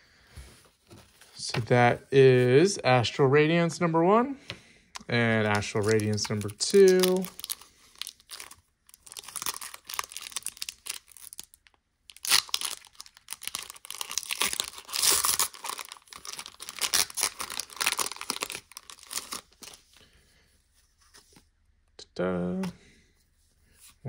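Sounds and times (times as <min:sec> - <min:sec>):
foil wrapper tearing and crinkling: 0:05.4 - 0:19.8.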